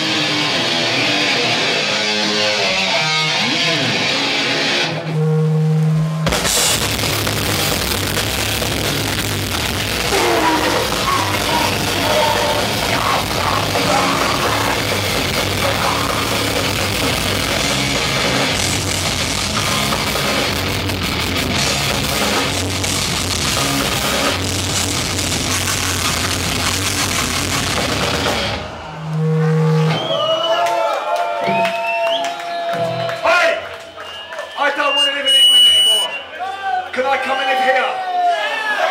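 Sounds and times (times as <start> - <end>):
punk band playing loud: 6.0 - 30.2.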